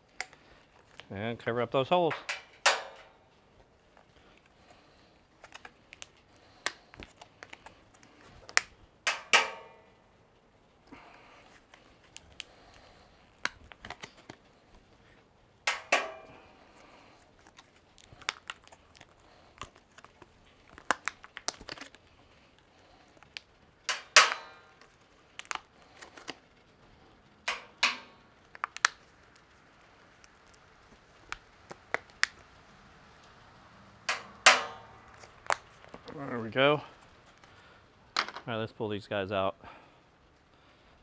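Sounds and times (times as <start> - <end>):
handling rustle: 0.0 - 9.3, 10.8 - 32.5
magnets snapping onto steel drum: 2.1 - 3.1, 9.1 - 9.8, 15.7 - 16.3, 23.9 - 24.7, 27.5 - 28.1, 34.1 - 34.9
ringing metallic clanks: 2.1 - 3.2, 15.7 - 16.4.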